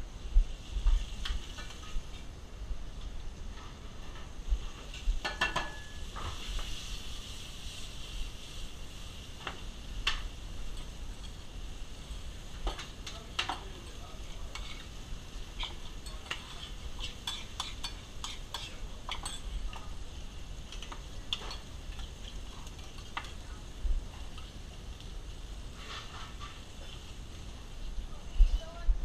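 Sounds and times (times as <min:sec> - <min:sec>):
steady background hiss: 0:00.0 - 0:29.0
utensil clinking and scraping in metal pan: 0:05.2 - 0:06.4, 0:12.6 - 0:19.9, 0:20.7 - 0:23.4.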